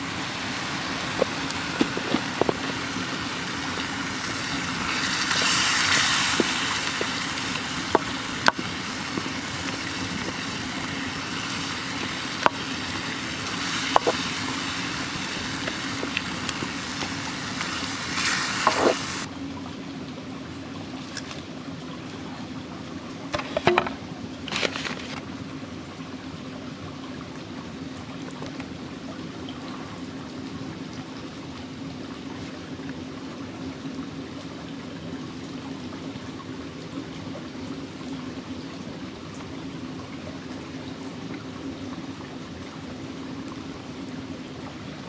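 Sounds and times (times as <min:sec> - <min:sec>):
stream running water: 0:00.0 - 0:45.0.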